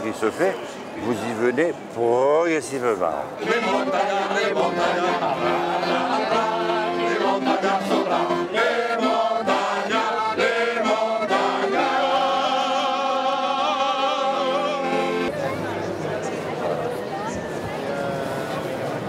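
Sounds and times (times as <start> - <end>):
men singing in chorus: 3.4 - 15.3.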